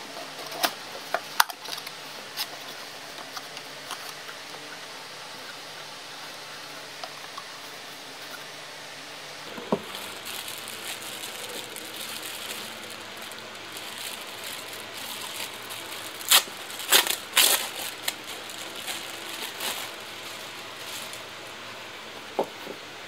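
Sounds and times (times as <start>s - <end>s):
steady hiss: 0.0s - 23.0s
plastic packaging crinkling: 9.5s - 21.7s.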